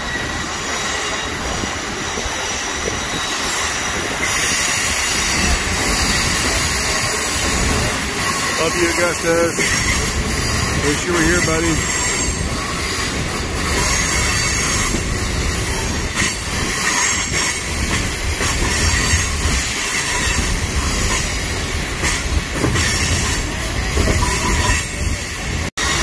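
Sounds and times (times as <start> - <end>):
train wheels rumbling on rails: 0.0 - 26.0
wheel squeal: 2.2 - 8.8, 11.8 - 26.0.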